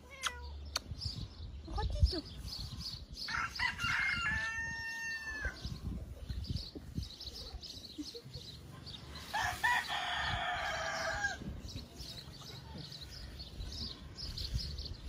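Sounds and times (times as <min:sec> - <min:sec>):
rooster crowing: 0:03.3 - 0:05.6, 0:09.3 - 0:11.4.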